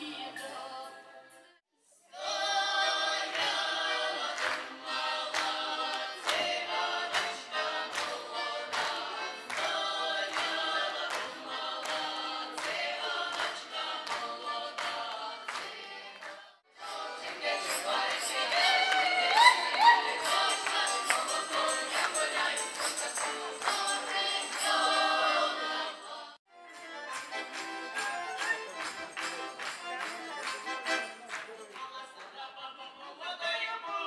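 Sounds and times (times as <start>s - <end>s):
women singing together: 0.0s - 1.5s, 2.1s - 26.4s.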